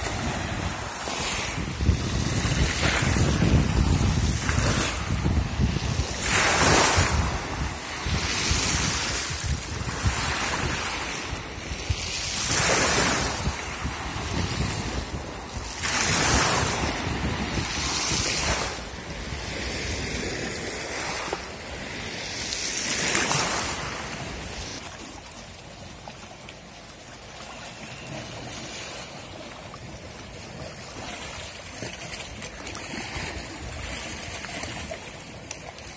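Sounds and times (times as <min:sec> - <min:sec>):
waves washing over pebbles: 0:00.0 - 0:35.9.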